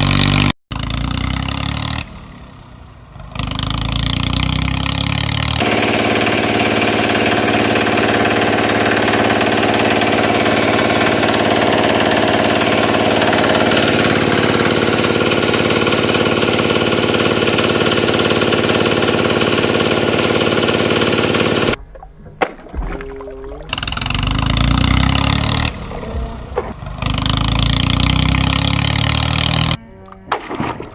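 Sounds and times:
tractor engine knocking idle: 5.6 - 21.8, 23.7 - 29.1.

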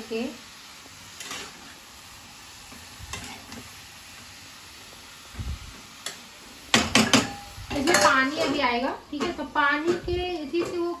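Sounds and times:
vegetables sizzling in oil: 0.0 - 11.0
metal spatula scraping pan: 1.2 - 1.8.

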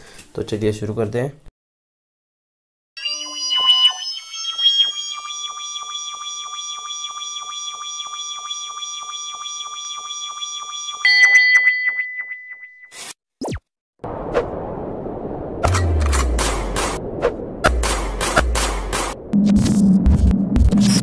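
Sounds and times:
electronic pulsing beeps: 3.0 - 11.4
electronic tone: 3.0 - 11.4.

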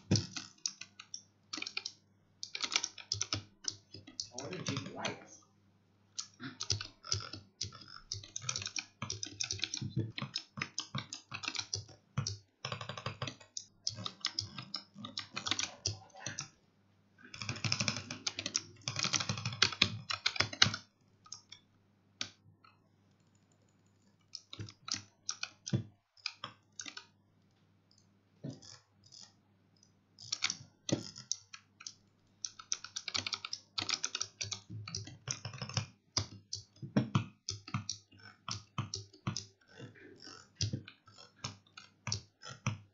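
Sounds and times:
keyboard keys clicking: 0.0 - 5.2, 6.2 - 16.5, 17.4 - 21.6, 30.2 - 39.6.

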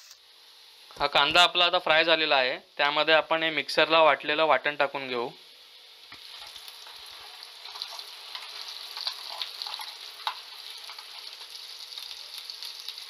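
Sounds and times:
paste sizzling in hot oil: 4.9 - 13.0.

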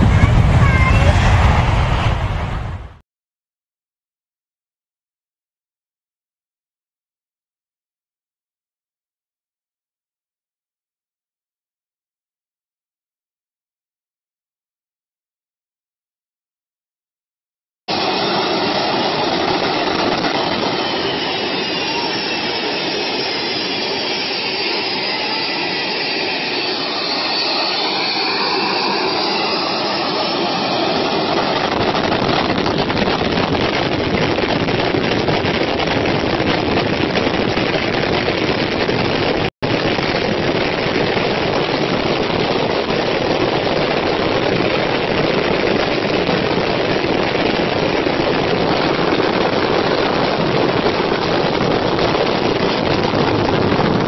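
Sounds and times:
high turbine whine: 0.0 - 3.0, 17.9 - 54.0
jet engines roaring: 0.0 - 3.0, 17.9 - 54.0.

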